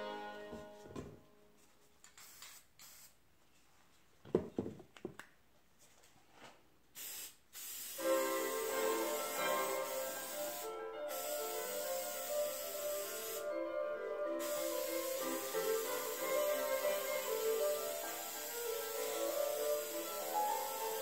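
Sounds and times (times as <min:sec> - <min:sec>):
background music: 0:00.0 - 0:01.6, 0:08.0 - 0:21.0
aerosol spray can hissing: 0:02.1 - 0:03.2, 0:07.0 - 0:13.5, 0:14.4 - 0:21.0.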